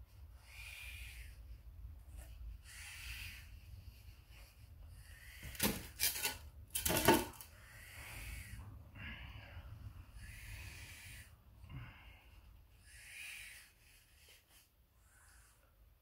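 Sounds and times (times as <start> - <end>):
snake hissing: 10.1 - 11.4, 12.8 - 13.9.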